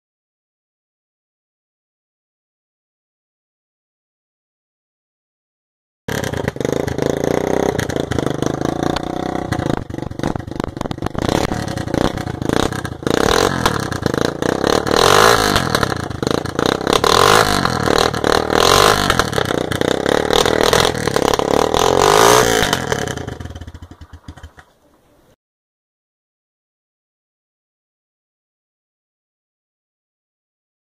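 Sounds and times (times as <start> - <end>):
exhaust popping and crackling: 6.1 - 24.8
motorcycle engine revving: 6.1 - 24.8.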